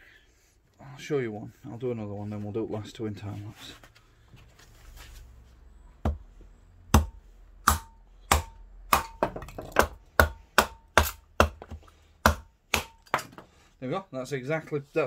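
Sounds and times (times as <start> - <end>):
knife chopping into wood: 6.9 - 13.4.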